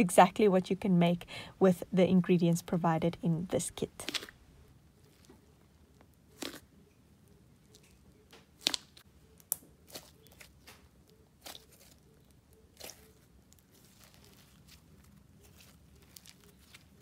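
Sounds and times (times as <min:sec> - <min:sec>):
slime squeezed by hand: 0:06.3 - 0:06.7
sticky pops and crackles: 0:07.7 - 0:17.0.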